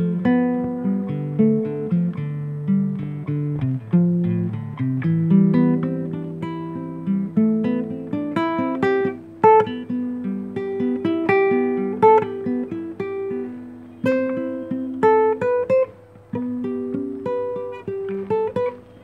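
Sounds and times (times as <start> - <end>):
fingerpicked classical guitar: 0.0 - 19.0.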